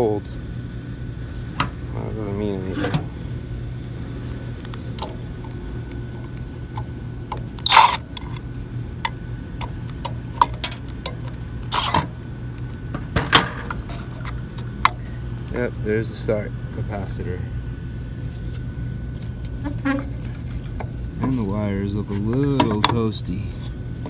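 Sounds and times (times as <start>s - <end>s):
steady low hum: 0.0s - 24.0s
metal cover clicking and rattling: 6.8s - 8.4s, 9.0s - 12.1s.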